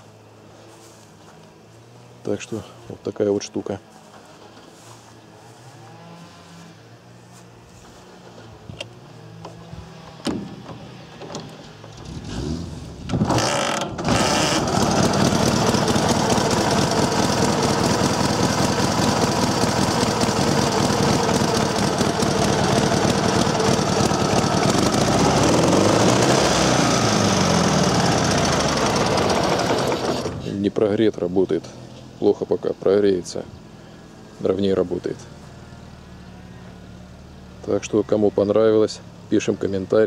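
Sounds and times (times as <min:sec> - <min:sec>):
motorcycle engine starting: 0:07.9 - 0:31.0.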